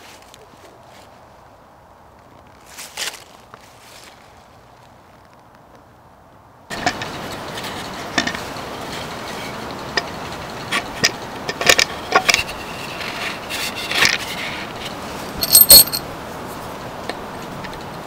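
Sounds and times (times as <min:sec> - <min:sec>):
metal drill bit clinking: 0:15.3 - 0:16.0.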